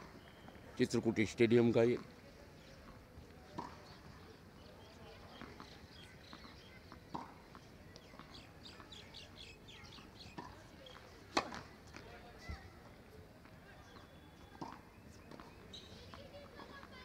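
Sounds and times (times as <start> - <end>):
small birds chirping: 2.4 - 11.7, 13.8 - 17.0
tennis ball knocking on court: 3.6 - 3.9, 5.4 - 7.6, 10.4 - 12.0, 14.6 - 15.5.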